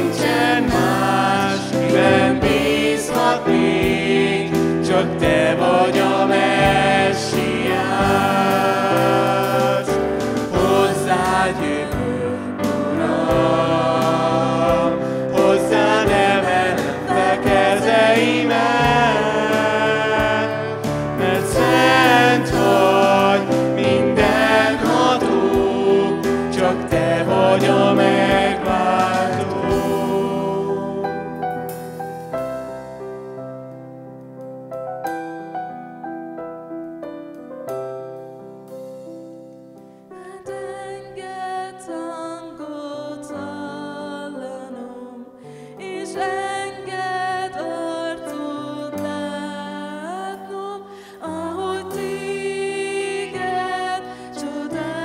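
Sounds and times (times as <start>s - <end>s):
voices singing in harmony: 0.0s - 31.9s, 40.2s - 55.0s
keyboard chords: 0.0s - 41.2s.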